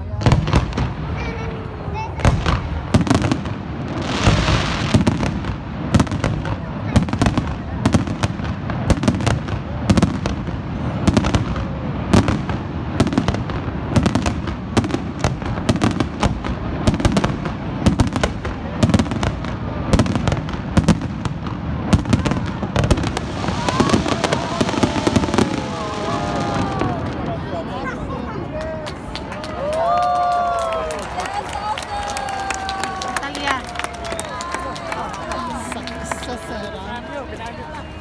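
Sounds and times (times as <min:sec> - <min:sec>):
fireworks bursting: 0:00.0 - 0:28.4.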